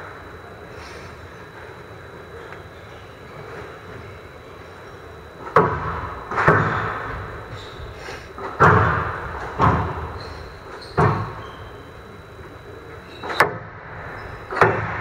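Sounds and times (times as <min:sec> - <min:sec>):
squash ball hits echoing: 0:08.6 - 0:10.0.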